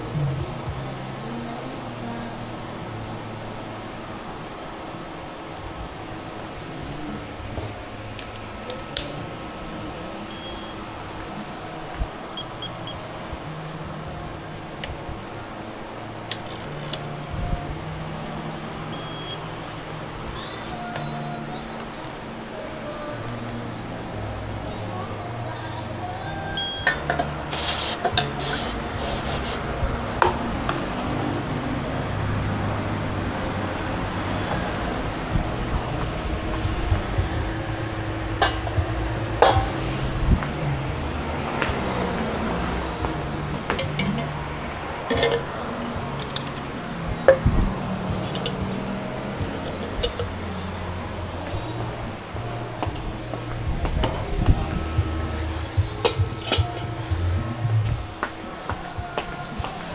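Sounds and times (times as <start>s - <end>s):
workshop background hum: 0.0s - 59.9s
electronic beep: 10.3s - 10.8s, 12.4s - 13.0s, 18.9s - 19.4s, 26.6s - 27.0s
aerosol spray hiss: 27.5s - 29.6s.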